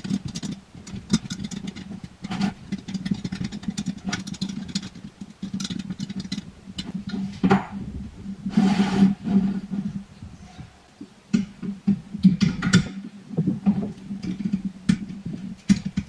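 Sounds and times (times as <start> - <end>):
metal tubes clicking and knocking: 0.0 - 7.8, 11.3 - 16.0
metal scrape: 0.0 - 10.8
steady low hum: 0.0 - 16.0.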